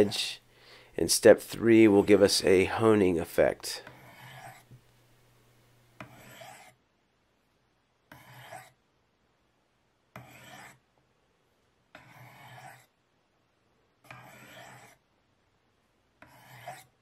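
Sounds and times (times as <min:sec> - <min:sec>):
steel scraping on ceramic: 0:03.9 - 0:04.7, 0:06.0 - 0:06.8, 0:08.1 - 0:08.7, 0:10.2 - 0:10.8, 0:12.0 - 0:12.9, 0:14.1 - 0:15.0, 0:16.2 - 0:17.0.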